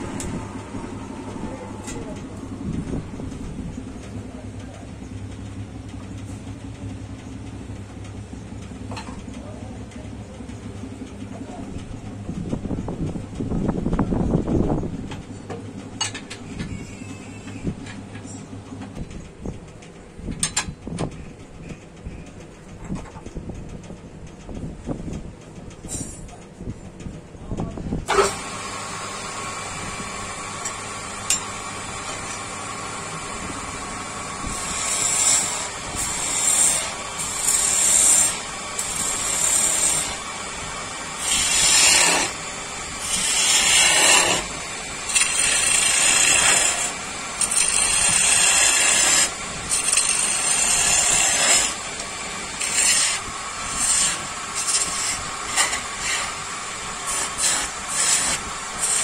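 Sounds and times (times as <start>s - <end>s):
steady machine hum: 0.0s - 59.0s
tool scraping wood: 34.0s - 59.0s.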